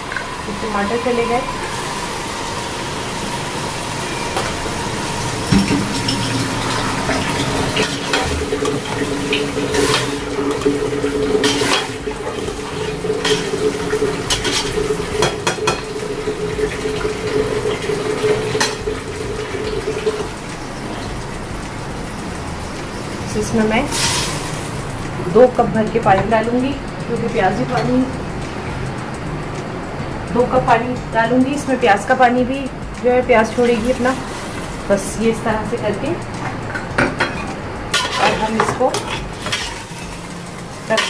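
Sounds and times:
frying noise: 0.0 - 41.0
spoon scraping and clinking pot: 5.5 - 16.0, 36.4 - 40.3.

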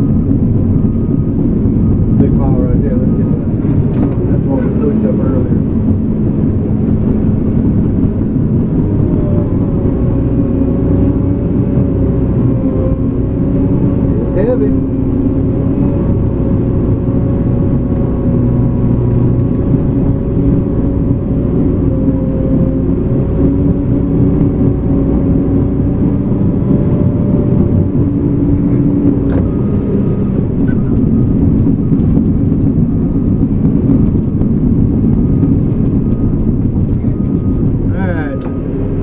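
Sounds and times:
bulldozer diesel engine running: 0.0 - 39.0.

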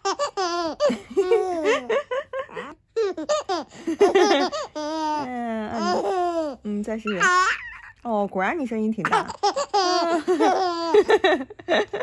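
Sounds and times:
baby laughing and squealing: 0.0 - 8.0, 9.0 - 11.2.

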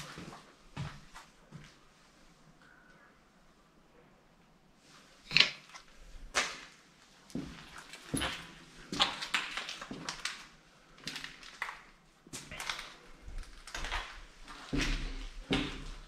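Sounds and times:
footsteps crunching over debris: 12.3 - 16.0.

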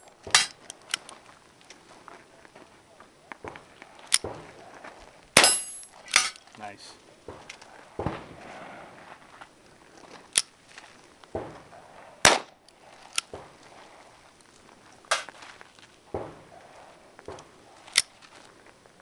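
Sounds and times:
pistol shots: 5.4 - 6.3, 12.2 - 12.6.

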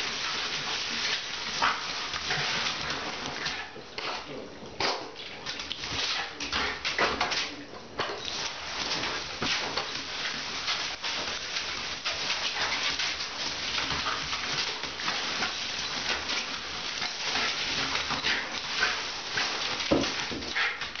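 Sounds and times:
water splashing: 0.0 - 21.0
shower spray hissing: 8.3 - 21.0.

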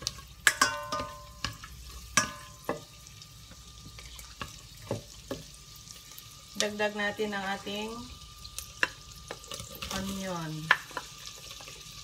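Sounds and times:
spoon stirring in a pan: 0.0 - 6.3, 8.4 - 12.0
garlic sizzling in butter: 0.0 - 12.0
spoon knocking metal pan: 0.4 - 2.9.

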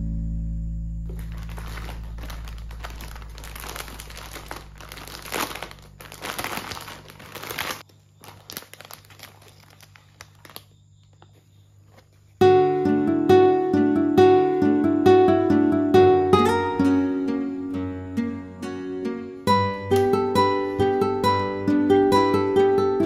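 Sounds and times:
guitar music: 0.0 - 4.7, 12.4 - 23.0
plastic bag crinkling: 1.1 - 10.8.

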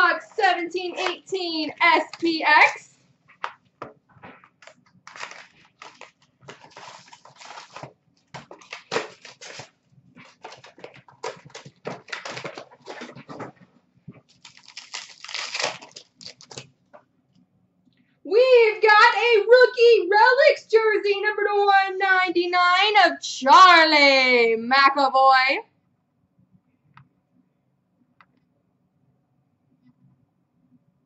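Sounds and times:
cards shuffling: 0.8 - 2.8, 4.2 - 13.6, 14.2 - 16.7
wrappers crinkling and tearing: 4.5 - 13.6, 14.2 - 16.7.

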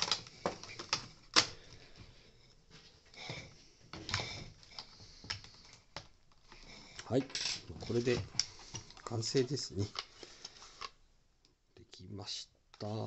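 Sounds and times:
plastic parts rattling: 0.0 - 1.6, 6.9 - 10.9.

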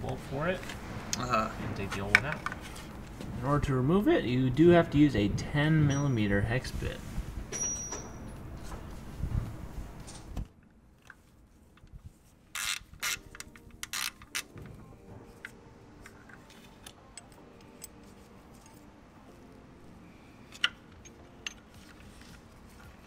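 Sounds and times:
metal clinking: 7.5 - 8.4
ratchet clicking: 12.6 - 14.5.

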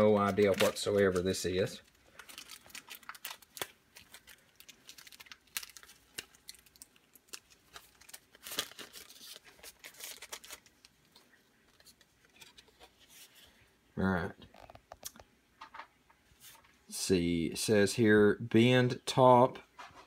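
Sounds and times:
plastic packaging tearing and crinkling: 0.0 - 11.8.

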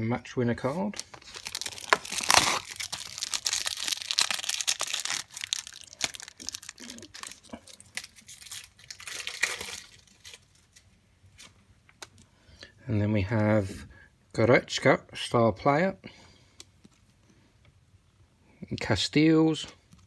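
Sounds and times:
foil wrapper crinkling: 1.0 - 10.9
cardboard tearing: 1.2 - 10.4.

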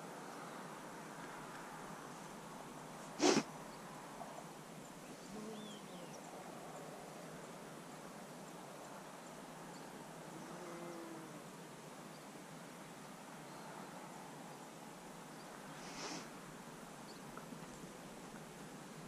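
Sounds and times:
faint outdoor hiss: 0.0 - 19.0
moose snorting: 3.2 - 3.5.

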